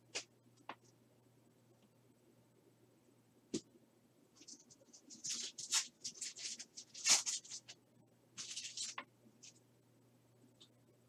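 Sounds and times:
foil wrapper crinkling and tearing: 5.1 - 7.7, 8.4 - 9.0.

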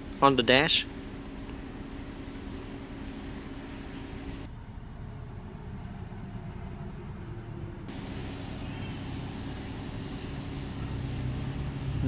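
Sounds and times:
climate control hiss: 7.9 - 12.0.

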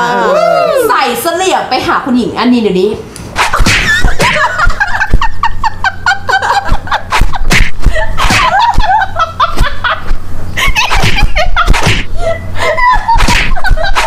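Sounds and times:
women laughing: 3.5 - 14.0.

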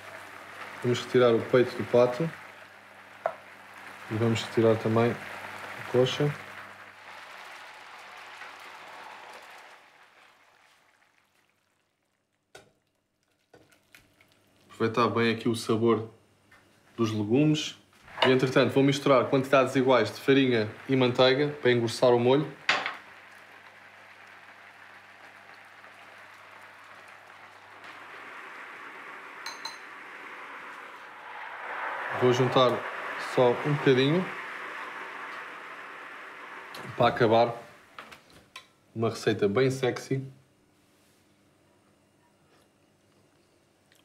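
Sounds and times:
food sizzling in a pan: 0.0 - 14.6, 18.1 - 38.4
faint steady hiss: 0.0 - 44.0
metal spoon clinking glass bowl: 29.5 - 29.8.

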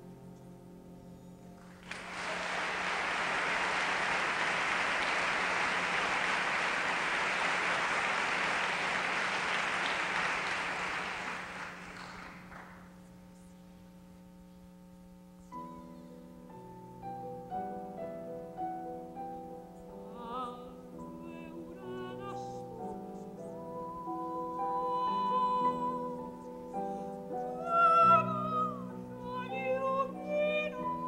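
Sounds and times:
audience applause: 1.7 - 12.9.

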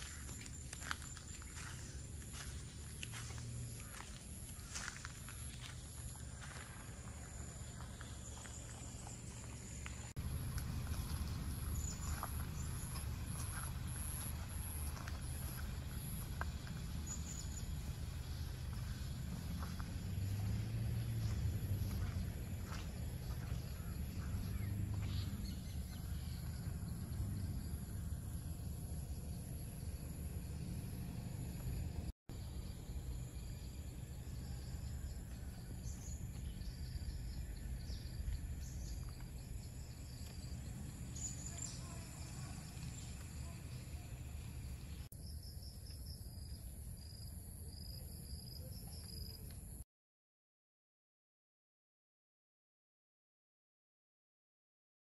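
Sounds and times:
low rumble: 10.0 - 45.1
bird chirps: 32.6 - 46.0.

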